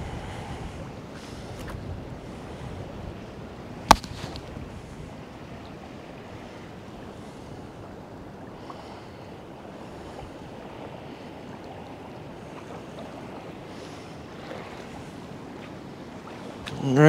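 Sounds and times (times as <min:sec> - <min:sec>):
wind buffeting microphone: 0:00.0 - 0:08.6
small waves lapping: 0:00.0 - 0:17.0.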